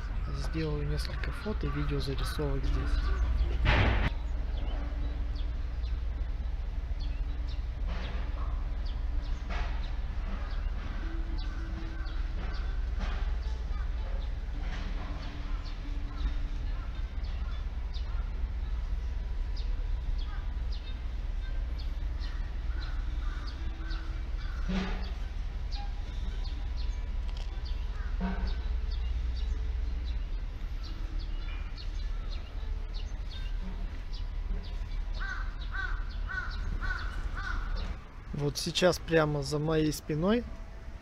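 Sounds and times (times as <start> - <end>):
crows cawing: 0.3 - 3.6, 10.3 - 13.0, 15.2 - 18.5, 20.2 - 25.3, 27.9 - 28.6, 35.1 - 38.1.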